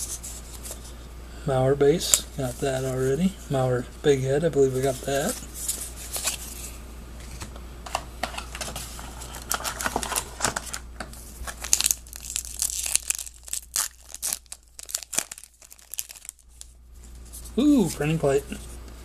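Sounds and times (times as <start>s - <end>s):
wrapper tearing and crinkling: 9.0s - 10.8s, 11.4s - 16.8s.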